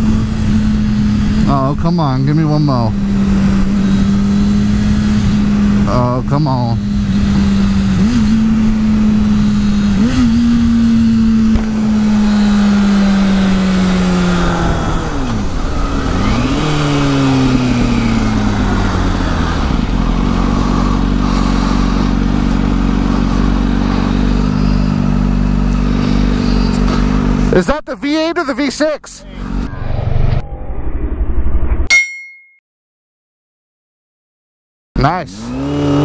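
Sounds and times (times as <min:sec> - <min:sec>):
motorcycle engine downshifting: 0:06.9 - 0:27.6.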